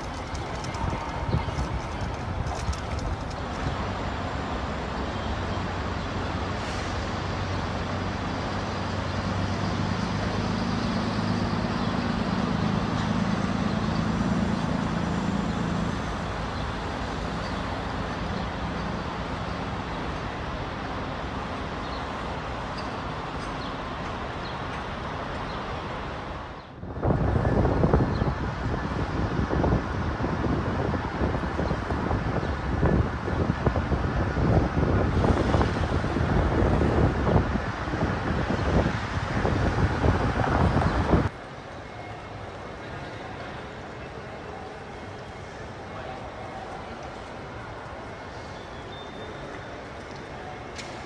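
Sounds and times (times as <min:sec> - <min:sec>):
wind buffeting microphone: 0:00.0 - 0:04.2, 0:26.4 - 0:41.4
city street traffic: 0:00.0 - 0:51.0
heavy vehicle engine hum: 0:00.0 - 0:51.0.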